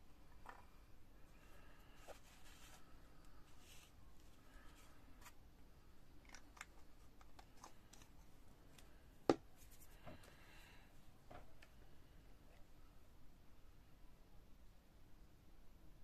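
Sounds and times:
paper tissue rustling: 1.9s - 5.4s.

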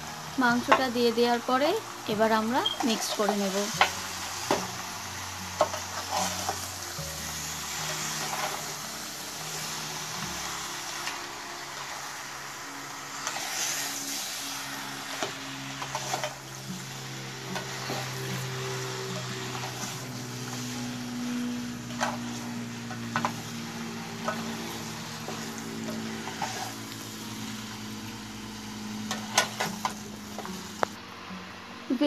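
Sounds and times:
meat sizzling in oil: 0.0s - 31.0s
soft background music: 0.0s - 32.0s
spatula scraping and knocking pan: 5.6s - 6.7s, 7.9s - 8.8s, 21.9s - 23.6s, 24.2s - 26.8s.

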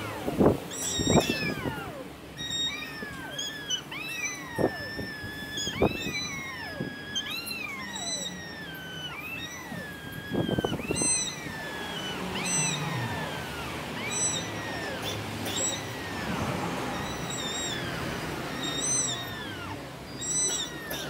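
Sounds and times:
cats yowling: 0.0s - 21.0s.

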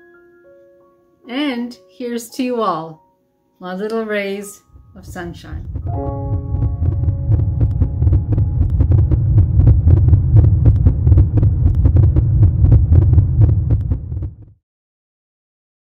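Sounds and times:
fireworks rumbling and crackling: 5.0s - 14.4s.

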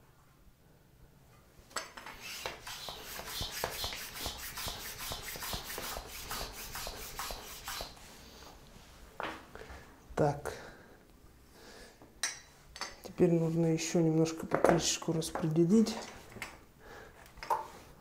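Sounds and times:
hand bicycle pump hissing: 2.0s - 8.0s.

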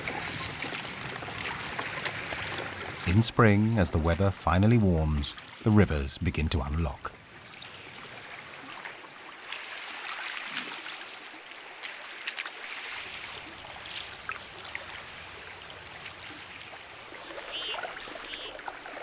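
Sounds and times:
light clicks of ice: 0.0s - 3.2s, 13.2s - 15.2s
river water trickling around ice: 0.0s - 6.1s, 7.2s - 19.0s.

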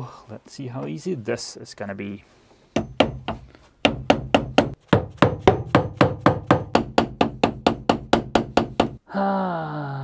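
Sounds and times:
hammer tapping on metal: 2.8s - 9.0s.

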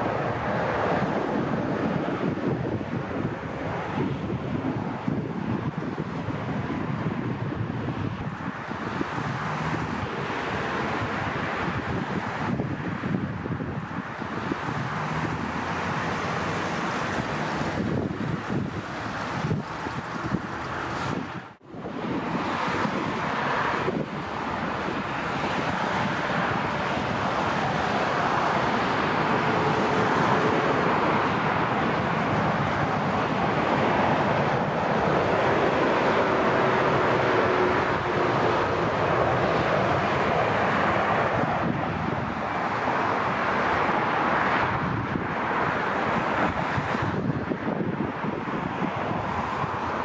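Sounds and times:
jet engines rushing: 0.0s - 50.0s
wind buffeting microphone: 0.0s - 50.0s.

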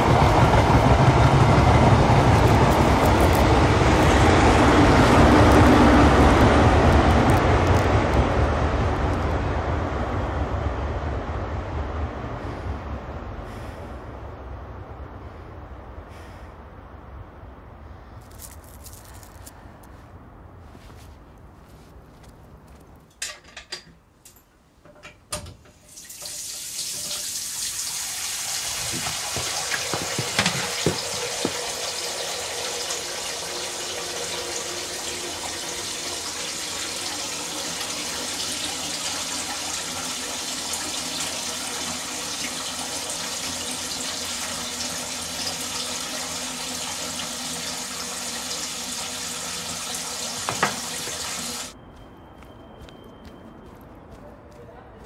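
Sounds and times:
tap running into sink: 28.7s - 32.0s, 50.2s - 51.3s
sharp knocks: 29.0s - 31.6s.

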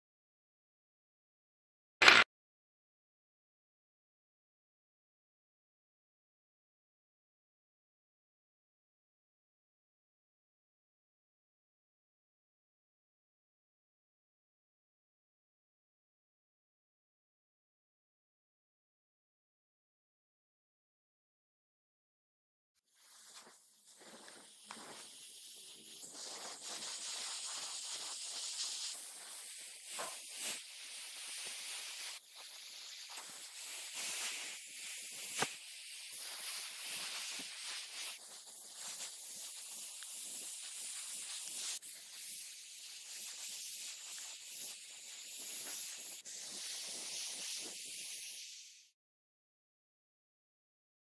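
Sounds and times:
sharp click: 2.0s - 2.3s
airbrush spraying hiss: 22.8s - 49.0s.

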